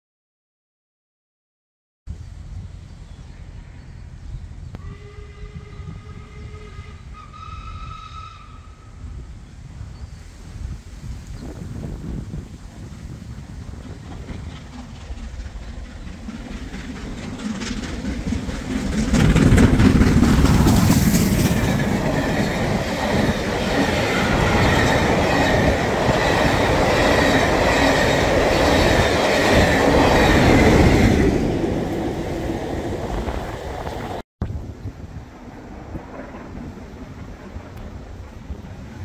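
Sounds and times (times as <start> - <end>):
steam locomotive passing: 2.3 - 34.2, 34.9 - 39.0
train wheels clattering: 13.1 - 32.3
high ringing of rails: 14.2 - 32.7.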